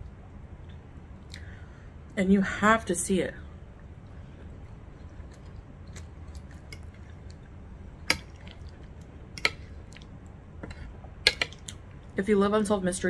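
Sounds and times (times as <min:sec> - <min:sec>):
soft chewing: 0:03.7 - 0:12.2.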